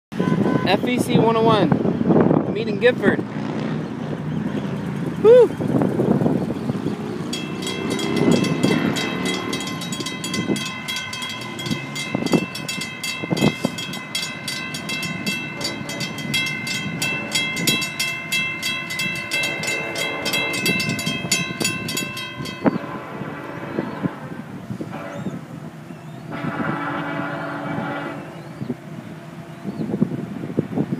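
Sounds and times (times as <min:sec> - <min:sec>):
crossing warning bell ringing: 0:04.1 - 0:28.4.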